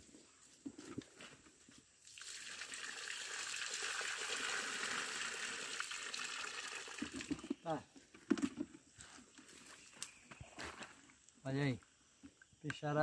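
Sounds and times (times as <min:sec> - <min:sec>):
water splashing from bucket: 0:02.0 - 0:07.6.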